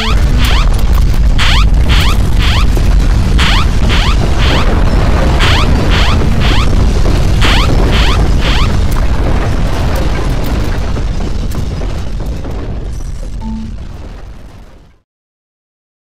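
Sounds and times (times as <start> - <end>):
rising electronic alarm tone: 0.0 - 0.8, 1.4 - 2.8, 3.4 - 6.8, 7.4 - 8.8
cracks and bangs: 0.0 - 14.8
deep earthquake rumble: 0.0 - 15.0.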